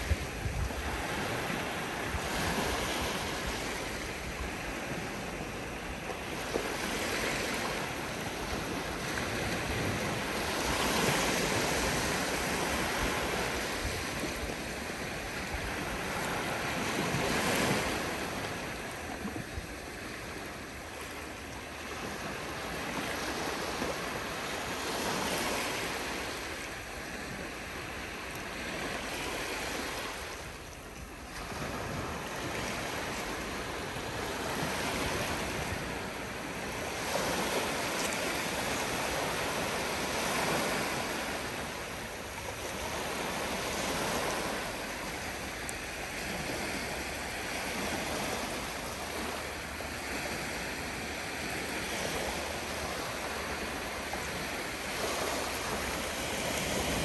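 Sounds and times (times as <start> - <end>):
small waves breaking on shore: 0.0 - 57.0.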